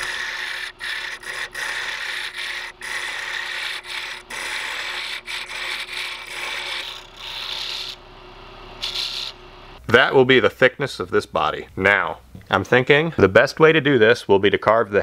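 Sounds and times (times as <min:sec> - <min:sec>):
chisel scraping on wood lathe: 0:00.0 - 0:08.0, 0:08.8 - 0:09.4
low steady hum: 0:00.0 - 0:13.3.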